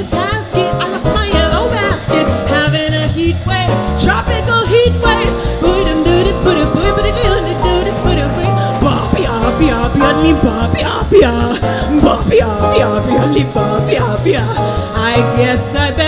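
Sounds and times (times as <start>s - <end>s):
drums: 0.0s - 16.0s
jazz piano: 0.0s - 16.0s
upright bass: 0.0s - 16.0s
woman scat singing: 4.7s - 14.5s.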